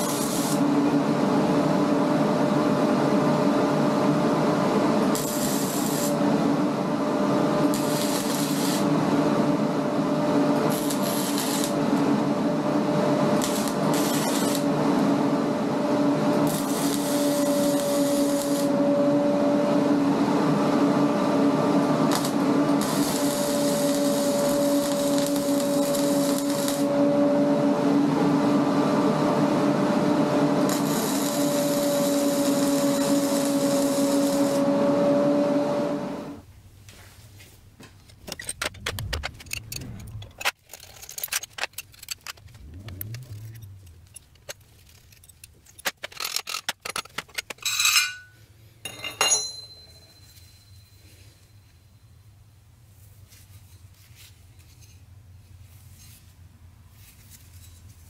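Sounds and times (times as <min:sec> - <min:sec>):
sizzling arc crackle: 0:00.0 - 0:00.7, 0:05.1 - 0:06.2, 0:07.6 - 0:08.9, 0:10.6 - 0:12.1, 0:13.3 - 0:14.8, 0:16.3 - 0:18.8, 0:21.8 - 0:27.0, 0:30.5 - 0:34.7
welding hum: 0:00.0 - 0:01.0, 0:04.6 - 0:36.4, 0:42.2 - 0:45.2
metal clinks and rings: 0:47.6 - 0:51.6.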